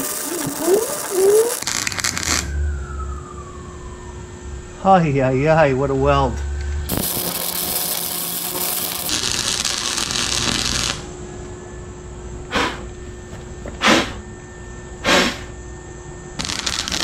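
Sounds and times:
welder arc crackling and hissing: 0.0s - 2.5s, 6.9s - 11.2s, 16.4s - 17.0s
faint steady hum: 0.0s - 17.0s.

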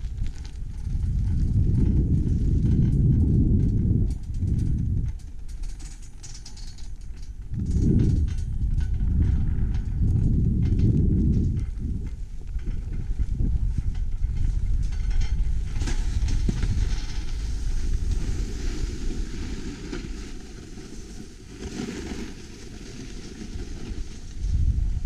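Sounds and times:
wind rumbling on microphone: 0.0s - 25.0s
skis scraping on snow: 10.0s - 25.0s.

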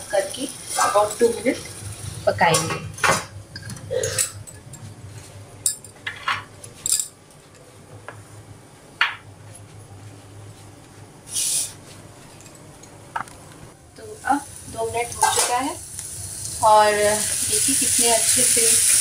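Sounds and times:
low steady hum: 0.0s - 18.2s
steel kitchenware clinking: 5.6s - 7.2s.

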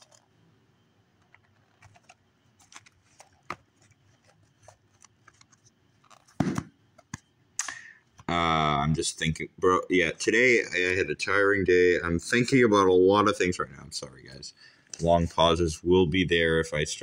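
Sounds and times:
book handling clicks and taps: 1.3s - 7.3s.

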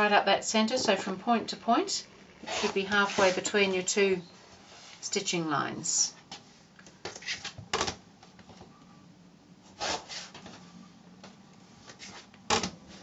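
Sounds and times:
faint steady hum: 0.0s - 13.0s
rotary cutter cutting fabric: 2.4s - 3.4s.

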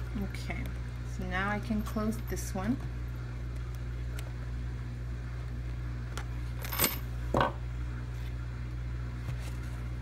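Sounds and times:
small metal hardware clinking: 6.6s - 7.1s.

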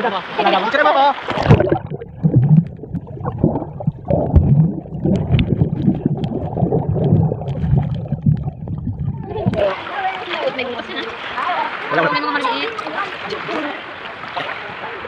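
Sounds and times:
water splash: 1.1s - 14.7s
muffled underwater churning: 1.2s - 10.2s
faint clicks and crackles: 1.3s - 9.7s.

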